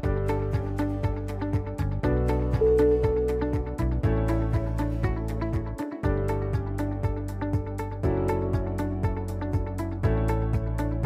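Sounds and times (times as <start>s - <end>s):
background music with steady beat: 0.0s - 11.0s.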